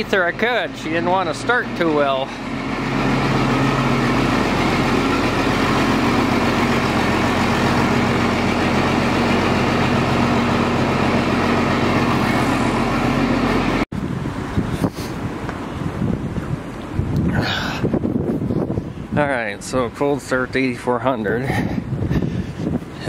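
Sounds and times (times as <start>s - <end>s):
diesel tractor engine idling: 0.0s - 14.5s
wind on microphone: 14.0s - 19.5s, 21.5s - 23.0s.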